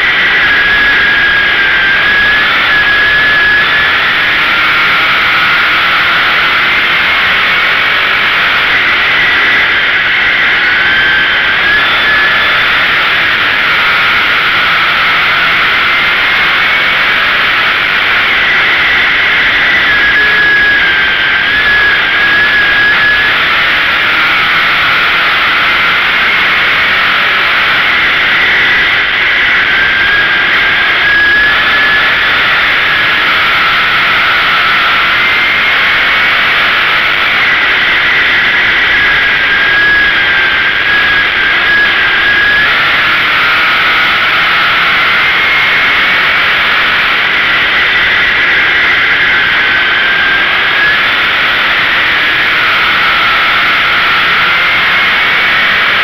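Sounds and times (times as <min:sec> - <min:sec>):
race car engine running hard: 0:00.0 - 0:56.0.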